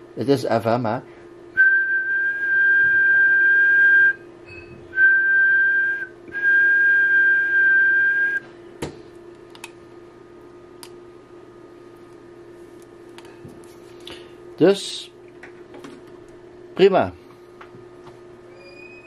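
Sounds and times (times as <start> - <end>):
person whistling a high note: 1.6 - 4.2, 5.0 - 8.4.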